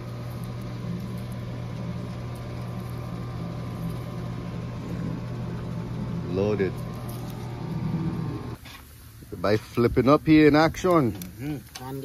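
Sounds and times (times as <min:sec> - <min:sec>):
machine humming: 0:00.0 - 0:08.6.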